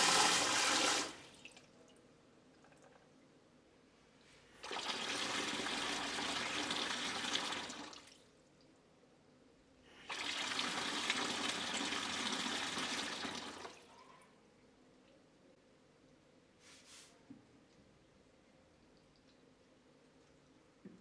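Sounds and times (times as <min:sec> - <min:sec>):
water gushing into plastic bucket: 0:00.0 - 0:01.7, 0:04.6 - 0:08.2, 0:10.0 - 0:13.9.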